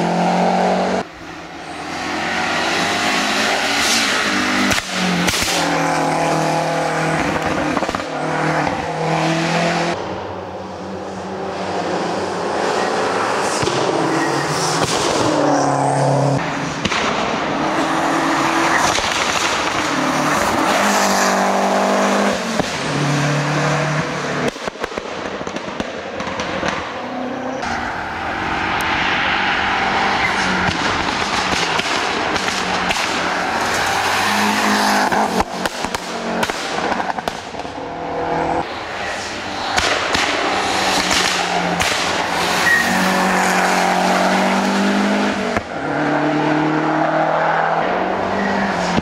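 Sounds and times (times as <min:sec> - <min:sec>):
rally car engine revving: 0:00.0 - 0:10.2, 0:11.1 - 0:49.0
sharp cracks: 0:16.8 - 0:17.5, 0:18.8 - 0:20.6, 0:30.4 - 0:33.8, 0:35.1 - 0:37.7, 0:39.7 - 0:42.4.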